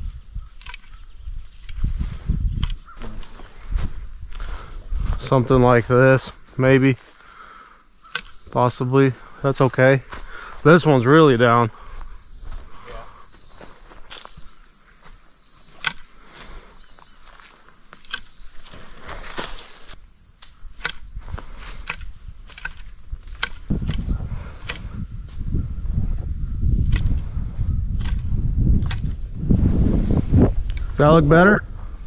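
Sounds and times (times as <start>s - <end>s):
footsteps: 0.0s - 7.3s, 8.2s - 25.5s
branches rustling: 0.0s - 25.6s
crickets chirring: 0.0s - 32.0s.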